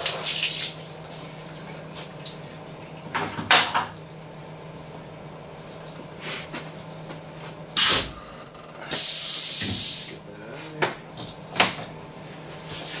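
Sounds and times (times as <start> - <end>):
pneumatic air hiss: 7.8 - 8.2, 8.9 - 10.2.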